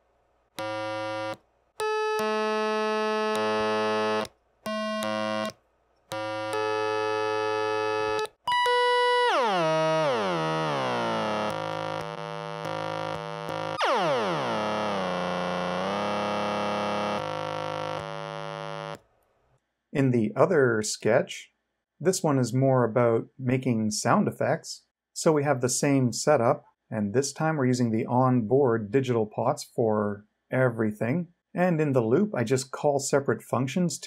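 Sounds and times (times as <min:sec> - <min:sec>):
buzzy oscillator tones through amp: 0:00.6 - 0:19.0.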